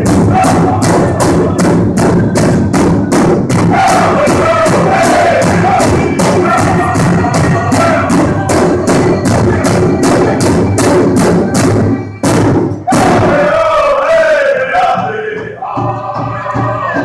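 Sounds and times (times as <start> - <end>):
men singing together: 0.0 - 2.3, 3.6 - 10.4, 12.9 - 17.0
large drum beating: 0.0 - 17.0.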